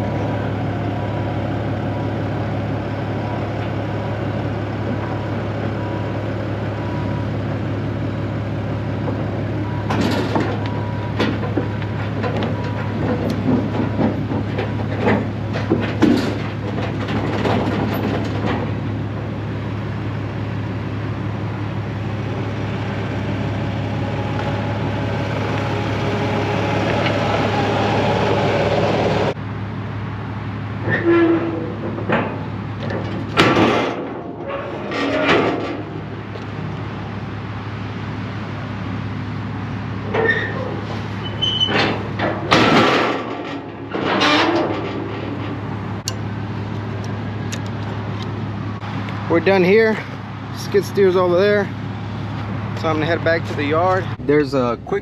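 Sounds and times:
diesel engine running: 0:00.0 - 0:55.0
tracks clanking on wooden deck: 0:09.0 - 0:19.4, 0:30.9 - 0:36.6, 0:40.0 - 0:47.1.

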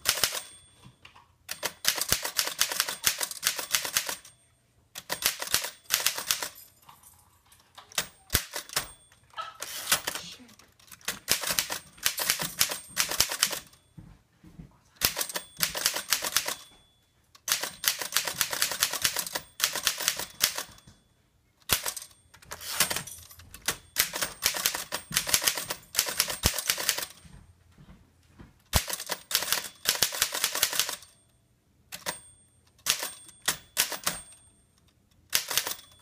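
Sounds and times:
typewriter keystrokes clacking: 0:00.0 - 0:00.5, 0:01.5 - 0:04.3, 0:05.0 - 0:06.6, 0:07.9 - 0:09.0, 0:10.8 - 0:13.8, 0:15.0 - 0:16.7, 0:17.4 - 0:20.8, 0:21.6 - 0:27.2, 0:28.7 - 0:31.2, 0:32.0 - 0:34.4, 0:35.3 - 0:36.0.

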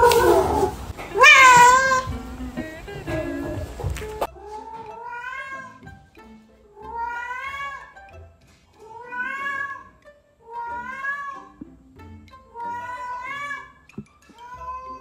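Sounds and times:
cat meowing: 0:00.0 - 0:02.1, 0:04.0 - 0:05.9, 0:06.8 - 0:08.0, 0:08.8 - 0:11.5, 0:12.5 - 0:13.8, 0:14.4 - 0:15.0.

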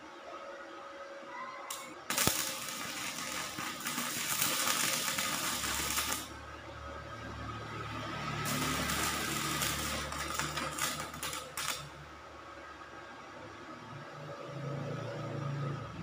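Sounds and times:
welder low hum: 0:01.7 - 0:06.4, 0:08.2 - 0:12.0
welding arc crackling: 0:01.7 - 0:06.4, 0:08.4 - 0:12.0
welding arc striking crack: 0:01.7 - 0:06.4, 0:08.4 - 0:12.0.

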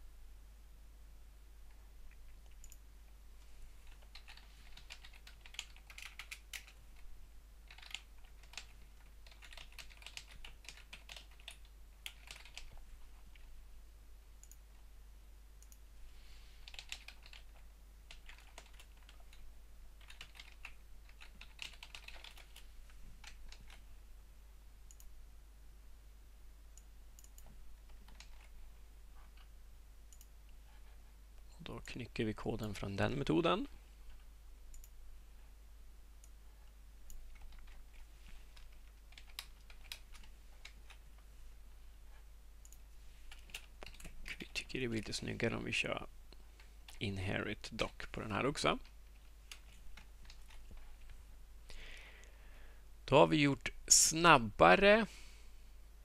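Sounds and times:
computer keyboard typing: 0:03.8 - 0:06.8, 0:07.6 - 0:13.5, 0:16.6 - 0:19.4, 0:20.0 - 0:22.6, 0:23.2 - 0:23.8, 0:27.2 - 0:28.6, 0:37.1 - 0:41.0, 0:42.6 - 0:44.6, 0:48.8 - 0:51.2.

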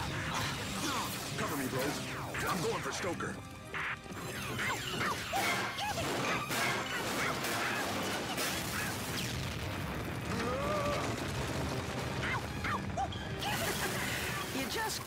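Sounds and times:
blaster fire booms and crashes: 0:06.0 - 0:14.6.

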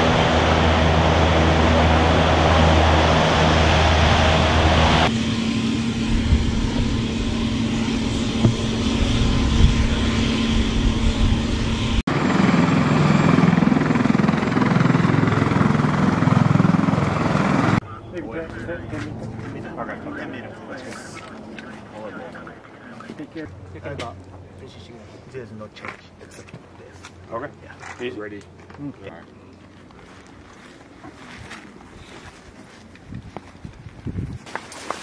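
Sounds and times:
helicopter rotor drone: 0:00.0 - 0:25.7
steady engine hum: 0:00.0 - 0:27.7
hovercraft roar: 0:00.0 - 0:30.0.

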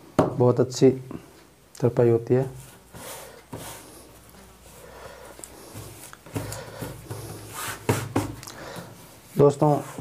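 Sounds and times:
cloth rustling and sliding: 0:02.5 - 0:10.0.

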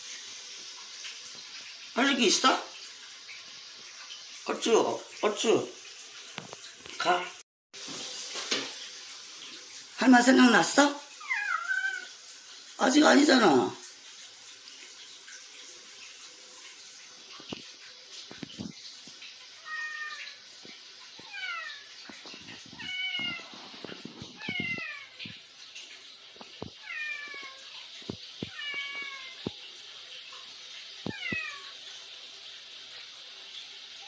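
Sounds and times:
cat meowing: 0:11.2 - 0:12.1, 0:19.6 - 0:20.4, 0:21.2 - 0:21.9, 0:22.8 - 0:23.6, 0:24.4 - 0:25.2, 0:26.8 - 0:27.7, 0:28.4 - 0:29.5, 0:31.0 - 0:31.8.

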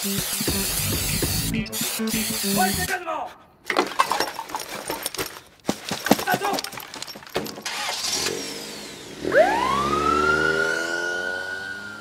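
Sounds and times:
rising siren-like tone: 0:09.2 - 0:12.0.

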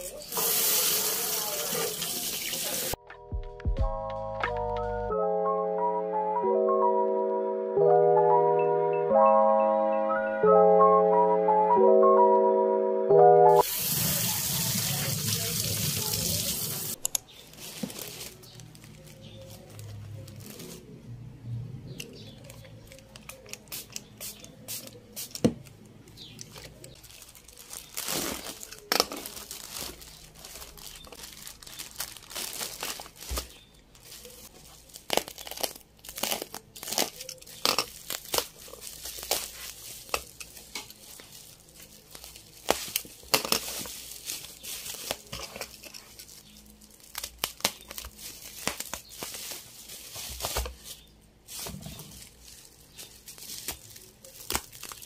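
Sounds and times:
plastic wrapping crinkling and tearing: 0:13.6 - 0:21.1, 0:22.1 - 0:55.0.

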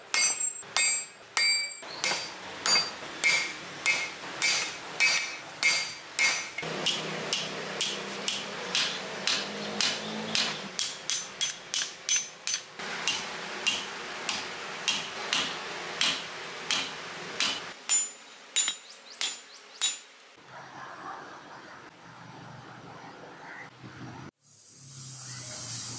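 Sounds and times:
hammer ringing on anvil: 0:00.1 - 0:09.4.

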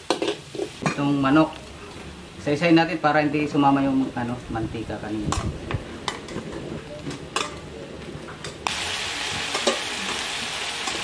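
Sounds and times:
chicken frying sizzle: 0:08.4 - 0:11.0.

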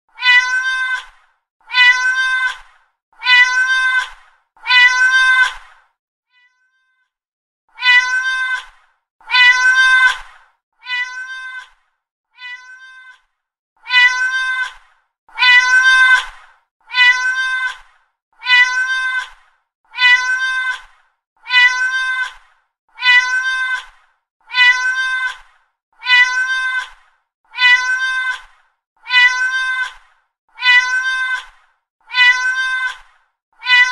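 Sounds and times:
cat meowing: 0:00.2 - 0:01.1, 0:07.8 - 0:08.7, 0:10.8 - 0:11.7, 0:12.4 - 0:13.2, 0:13.8 - 0:14.8, 0:18.4 - 0:19.3, 0:19.9 - 0:20.8, 0:21.4 - 0:22.4, 0:23.0 - 0:23.9, 0:24.5 - 0:25.4, 0:26.0 - 0:26.9, 0:27.5 - 0:28.4, 0:29.0 - 0:30.0, 0:30.6 - 0:31.5, 0:32.1 - 0:33.0, 0:33.6 - 0:33.9.

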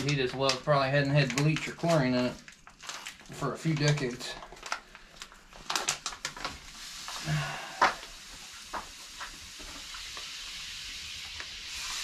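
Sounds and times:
granules pouring hiss: 0:03.3 - 0:12.0.

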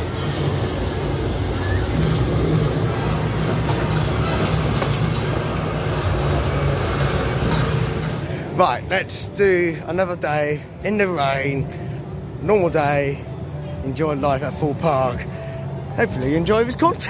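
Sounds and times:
diesel engine drone: 0:00.0 - 0:17.0.

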